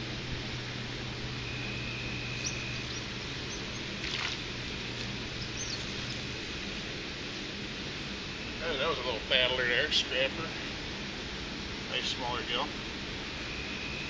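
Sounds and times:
faint bird chirps: 0:01.4 - 0:04.6, 0:05.2 - 0:06.4
fish splashing at surface: 0:03.9 - 0:05.2
high whistle: 0:13.4 - 0:14.0.

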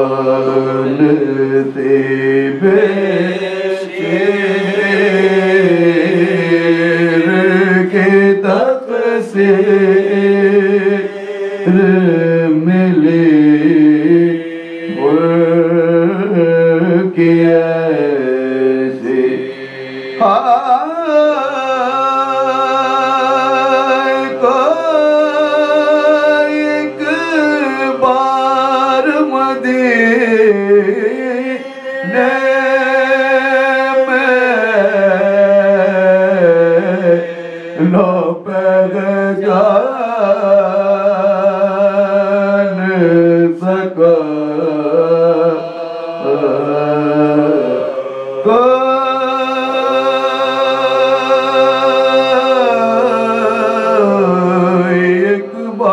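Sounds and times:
men holding sustained notes: 0:00.0 - 0:16.8, 0:34.6 - 0:40.0.

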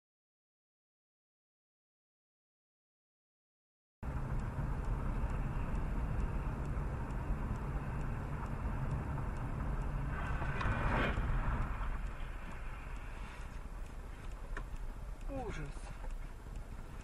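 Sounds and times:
road and engine rumble: 0:04.0 - 0:17.0
rushing swell: 0:04.1 - 0:15.9.

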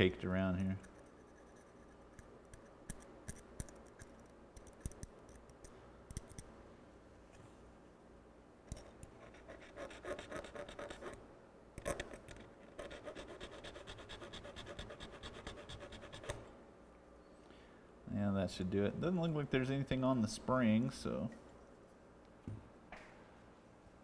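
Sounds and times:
quick filing strokes: 0:09.2 - 0:11.2, 0:12.8 - 0:16.4.

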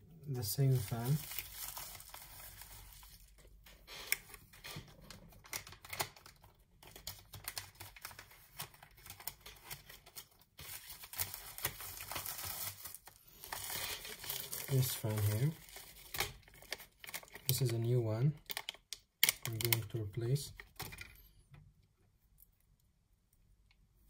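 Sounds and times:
paper envelope crinkling: 0:00.4 - 0:17.7.

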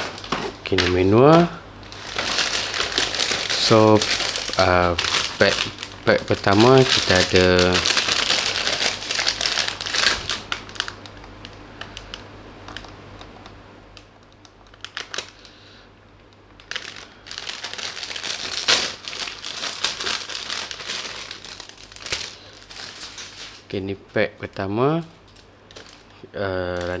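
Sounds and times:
plastic bag crinkling: 0:00.0 - 0:11.2, 0:14.7 - 0:15.6, 0:16.6 - 0:23.7, 0:25.2 - 0:27.0.

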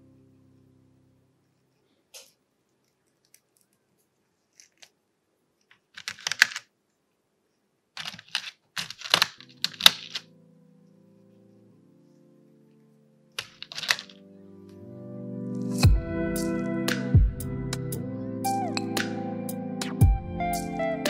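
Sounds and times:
plastic parts clicking and rattling: 0:04.5 - 0:05.0, 0:05.6 - 0:06.7, 0:08.0 - 0:10.3, 0:13.4 - 0:14.2.

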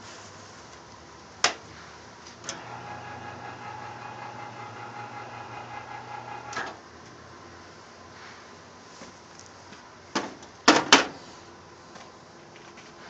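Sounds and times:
motor stopping clunk: 0:02.4 - 0:06.8
electric motor humming: 0:02.5 - 0:06.6.

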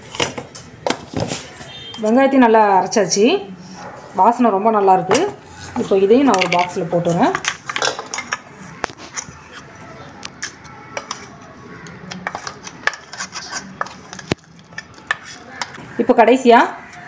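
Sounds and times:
spoon scraping steel jar: 0:12.1 - 0:15.8.

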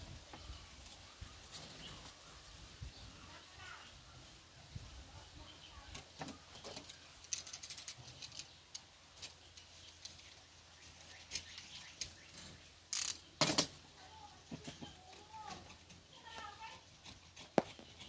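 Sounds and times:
tools scraping coconut husk: 0:14.9 - 0:18.0.

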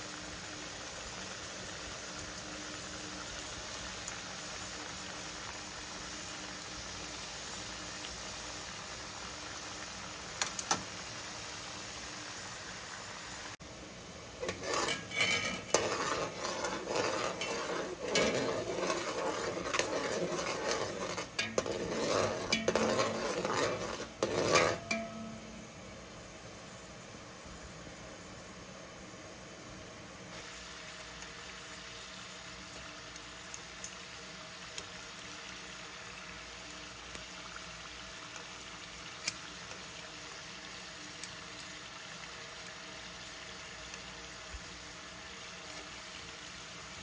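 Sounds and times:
dough deep-frying in oil: 0:00.0 - 0:47.0
metal spoon scraping a pot: 0:14.4 - 0:25.5.

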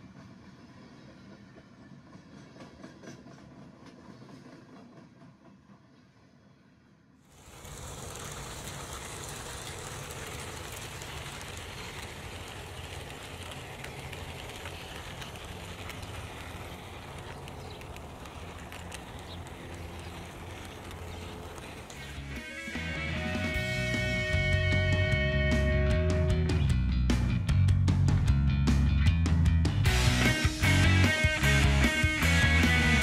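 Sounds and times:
model train motor hum: 0:07.3 - 0:24.5
wheel rumble on track: 0:07.3 - 0:25.7
faint clicks: 0:09.3 - 0:22.2.

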